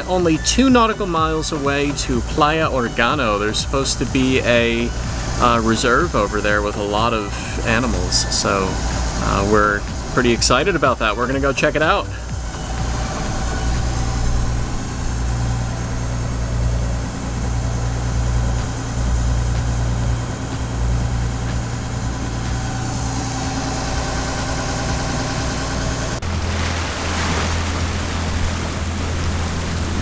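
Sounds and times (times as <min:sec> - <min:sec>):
diesel engine humming: 0:00.0 - 0:30.0
rushing water: 0:00.0 - 0:30.0.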